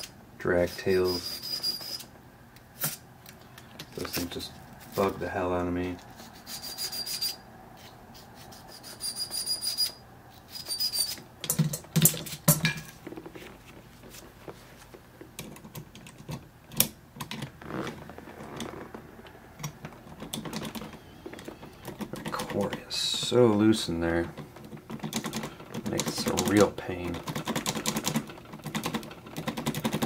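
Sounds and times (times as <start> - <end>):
file rasping on metal key: 1.0 - 2.1, 6.1 - 11.2
thin high whistle: 1.0 - 2.1, 6.4 - 7.4, 8.4 - 11.2
key and tools clicking: 24.9 - 26.6.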